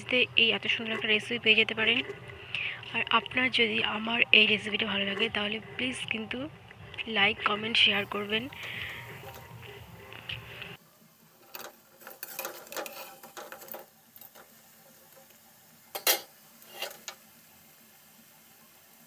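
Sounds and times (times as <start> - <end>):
food frying in oil: 0.0 - 6.4, 7.0 - 19.0
metal spoon scraping and clinking: 8.5 - 9.6, 11.4 - 14.5, 15.9 - 17.2.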